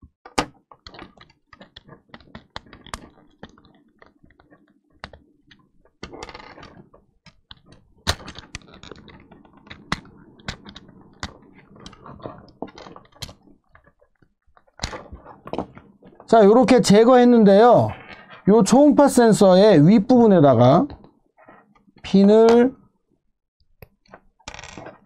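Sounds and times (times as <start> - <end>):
plastic rubbing: 0.5 - 19.4.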